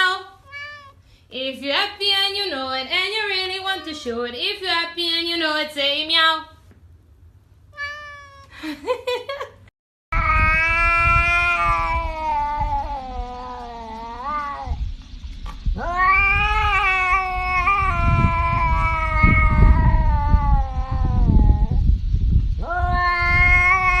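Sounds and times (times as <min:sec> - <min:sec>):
cat yowling: 0:00.4 - 0:01.0, 0:07.8 - 0:08.6, 0:10.2 - 0:14.8, 0:15.8 - 0:21.8, 0:22.6 - 0:24.0
low rumble: 0:10.2 - 0:24.0.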